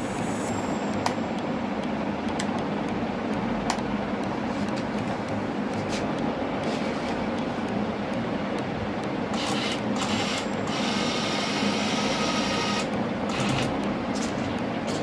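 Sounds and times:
electric gear motors whirring: 6.6 - 15.0.

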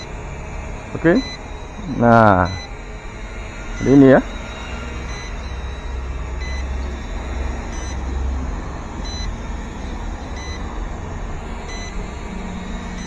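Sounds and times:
drone propellers buzzing: 0.0 - 13.0
short high electronic beep: 1.0 - 2.7, 3.8 - 4.3.

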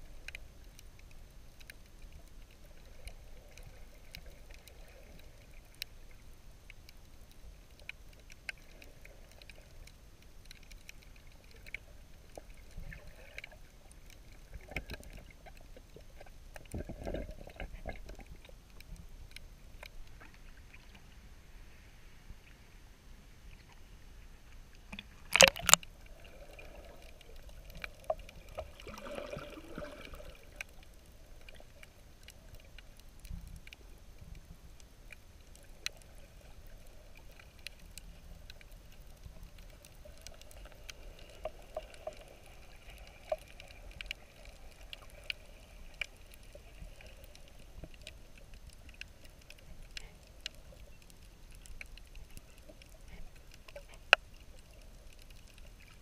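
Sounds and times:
faint underwater clicks: 0.0 - 22.7, 23.3 - 56.0
water splashing: 24.9 - 31.8
water swirling: 24.9 - 32.8.

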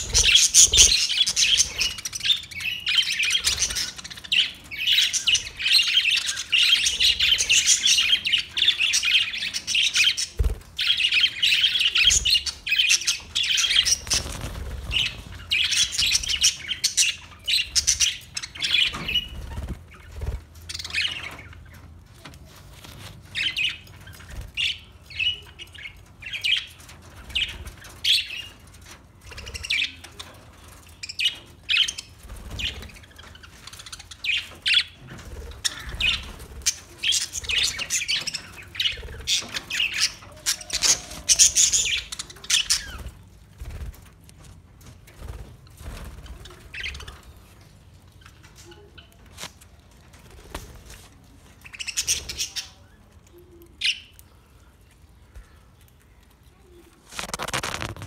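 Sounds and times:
budgerigars chattering and chirping: 0.0 - 20.1, 31.0 - 43.1.

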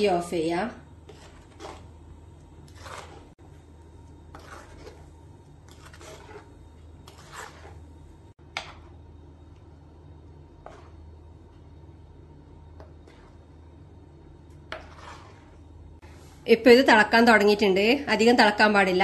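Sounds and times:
spoon scraping clay pot: 1.0 - 3.4, 4.1 - 9.0, 10.6 - 11.1, 12.8 - 13.5, 14.5 - 15.7.

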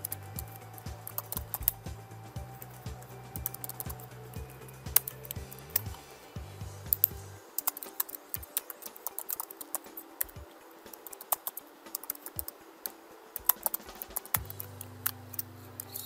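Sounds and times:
keyboard typing clicks: 7.0 - 14.7.

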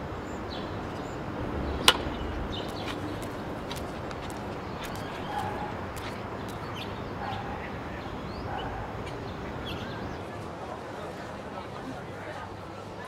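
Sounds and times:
bird calls and chirps: 0.2 - 10.3.

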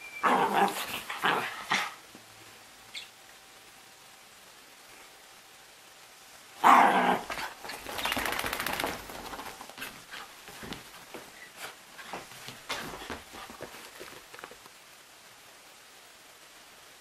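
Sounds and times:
scuffling on sofa: 9.8 - 14.3.

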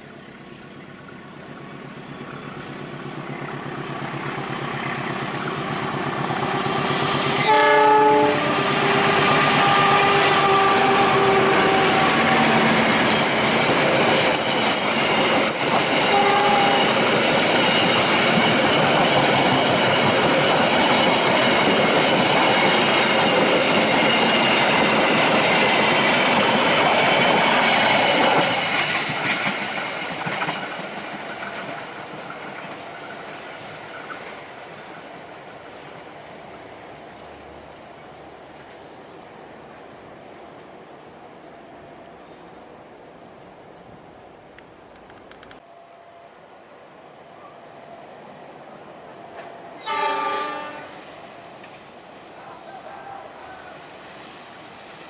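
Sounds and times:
locomotive passing: 0.0 - 55.0
train horn chord: 6.6 - 12.8, 16.0 - 17.1, 49.8 - 51.1
wheels clattering over rail joints: 12.0 - 34.6.

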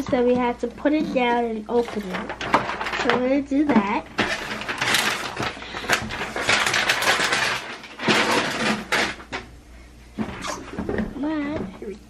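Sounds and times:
plastic rustling and clicking: 0.0 - 9.5.

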